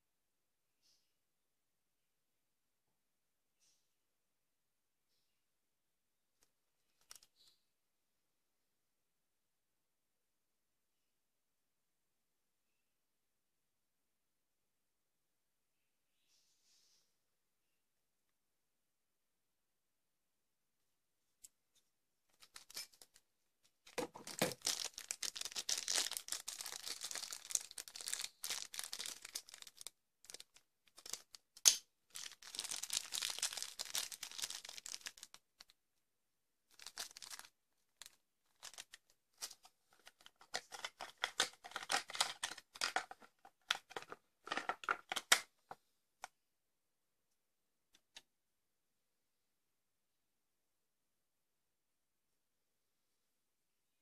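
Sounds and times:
plastic bags crinkling: 22.3 - 23.2, 23.9 - 31.5, 32.1 - 35.7, 36.7 - 45.3.

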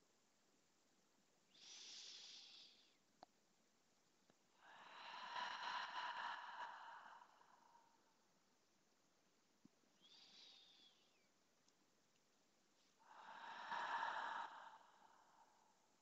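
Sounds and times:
woman breathing slowly: 1.5 - 3.1, 4.5 - 8.2, 10.0 - 11.4, 12.7 - 16.0
faint click: 3.2 - 3.4, 11.6 - 12.3.

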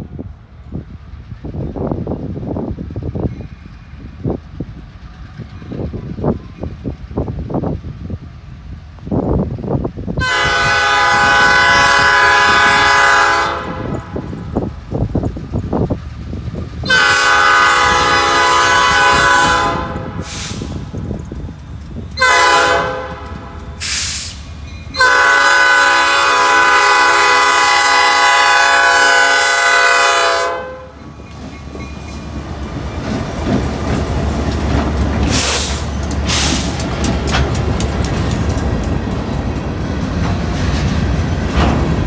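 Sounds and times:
diesel engines rumbling: 0.0 - 42.0
locomotive air horn: 10.2 - 14.3, 16.8 - 20.8, 22.2 - 24.4, 25.0 - 31.0
train wheels clicking over rail joints: 13.6 - 17.2, 19.3 - 26.5, 31.0 - 42.0.

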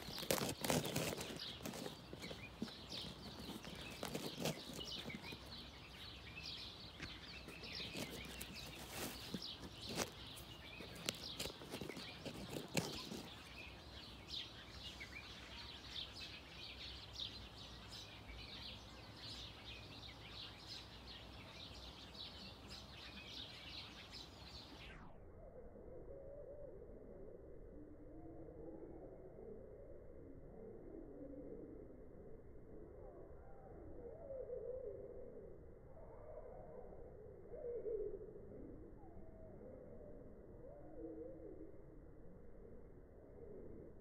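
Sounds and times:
birds chirping: 0.0 - 24.9.

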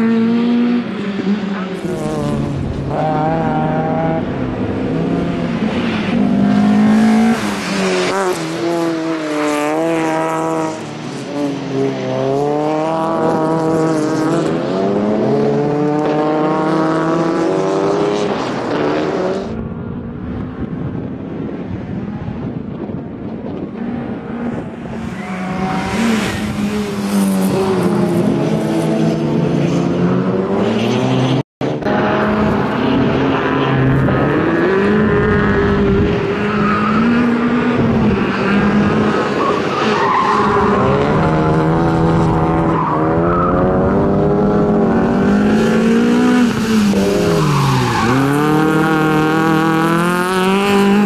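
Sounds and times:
rally car engine revving: 23.9 - 51.0.

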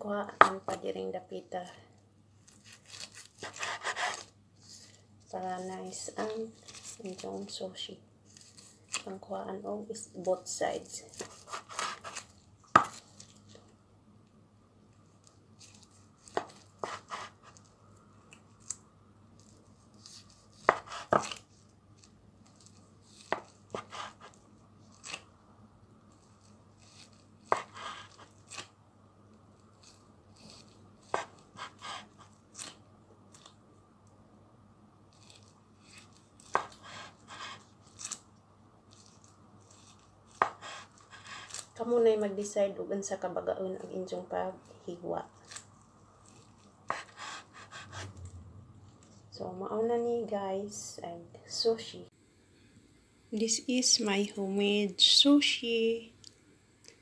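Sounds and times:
knife slicing sushi roll: 2.5 - 4.8, 11.1 - 13.4, 15.6 - 17.7, 19.4 - 25.3, 26.2 - 28.7, 29.6 - 33.5, 35.2 - 38.2, 38.9 - 41.8, 45.4 - 48.2.

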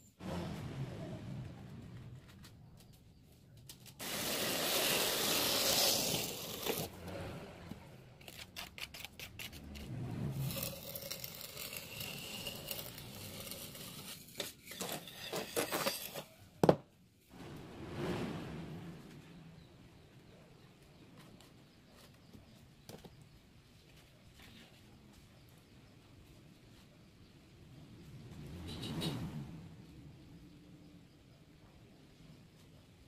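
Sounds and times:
tool scraping wet mortar: 4.0 - 7.0, 8.2 - 16.4.

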